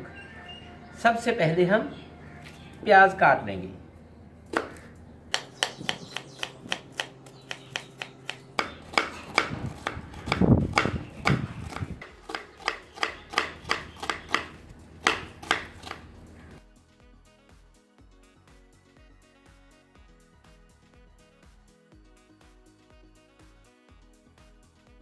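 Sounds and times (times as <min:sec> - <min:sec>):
knife chopping on cutting board: 0:04.5 - 0:16.0.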